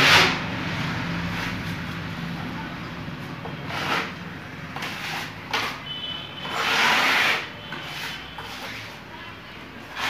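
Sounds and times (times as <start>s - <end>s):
metal blade scraping wall compound: 0.0s - 2.0s, 3.4s - 10.0s.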